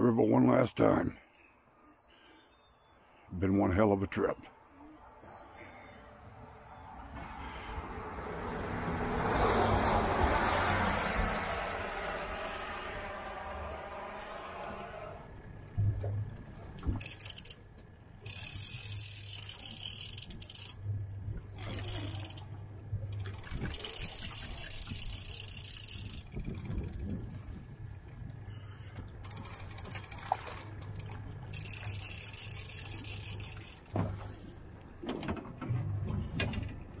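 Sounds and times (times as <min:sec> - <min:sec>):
low hum: 0:04.4 - 0:37.0
fishing reel clicking: 0:16.8 - 0:20.8, 0:21.5 - 0:27.2, 0:29.0 - 0:34.0.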